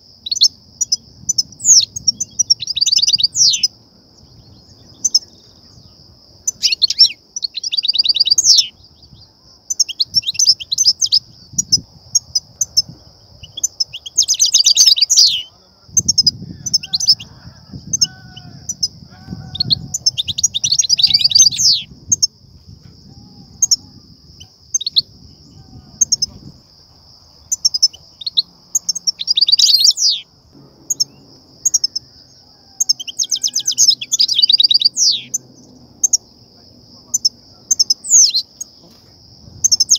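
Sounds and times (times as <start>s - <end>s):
steady high-pitched hiss: 0.0s - 39.9s
finch twittering: 1.3s - 3.7s, 6.5s - 8.7s, 12.6s - 17.3s, 19.5s - 22.3s, 27.4s - 30.2s, 32.7s - 35.4s.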